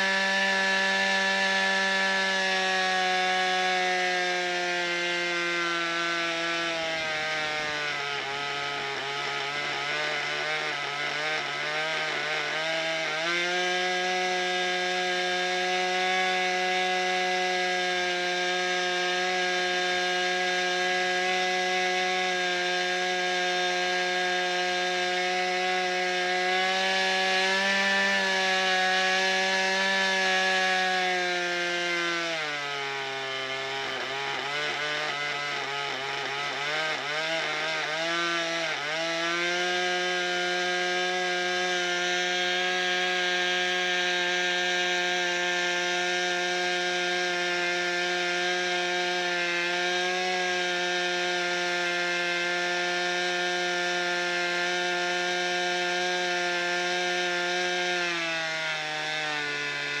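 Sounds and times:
model aircraft engine running: 0.0 - 0.4, 4.9 - 13.6.

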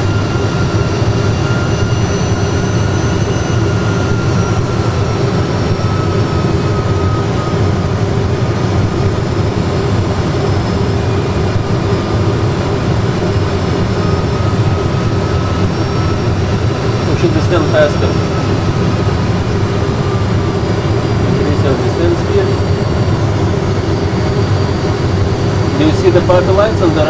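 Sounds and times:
low rumble of engine and airflow: 0.0 - 27.0
faint thin whines sinking in pitch: 10.2 - 27.0.

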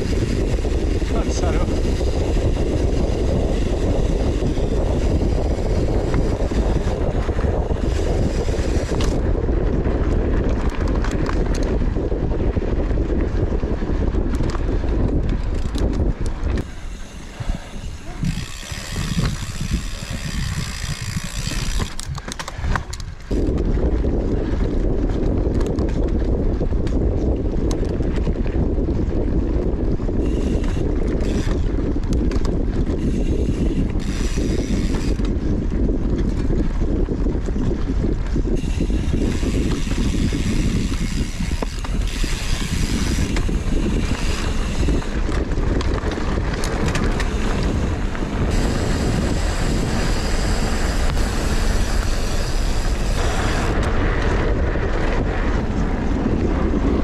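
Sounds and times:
bike clicks and rattles: 0.0 - 57.0
wind buffeting microphone: 0.0 - 57.0
tyres rumbling on dirt: 29.9 - 57.0.

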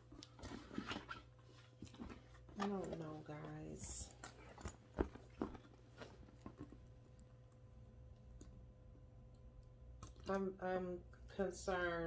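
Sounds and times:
faint steady hum: 0.0 - 12.0
handbag knocks and clicks: 1.8 - 6.9.

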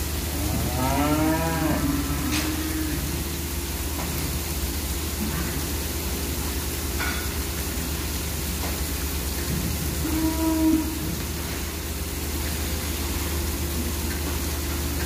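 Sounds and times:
barn hum and hiss: 0.0 - 15.0
cow mooing low: 0.3 - 3.3, 10.0 - 11.1.

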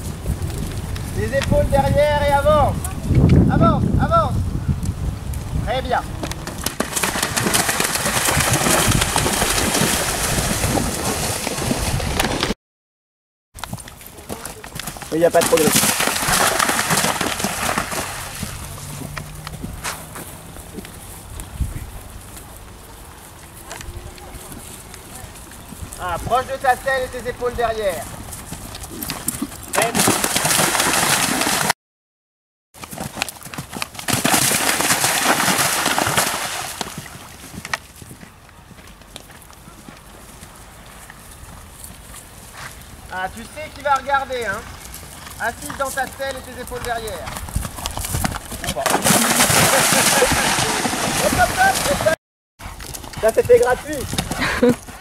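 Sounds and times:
wind buffeting microphone: 0.0 - 6.6, 8.1 - 12.4, 18.0 - 22.3, 46.6 - 48.7
horse splashing through water: 6.5 - 12.5, 14.6 - 19.2, 28.9 - 31.7, 32.9 - 37.6, 48.0 - 52.2.

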